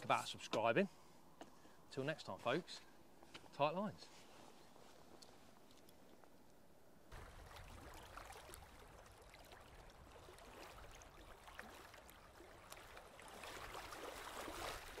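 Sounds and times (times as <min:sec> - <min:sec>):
water lapping and trickling: 0:04.1 - 0:15.0.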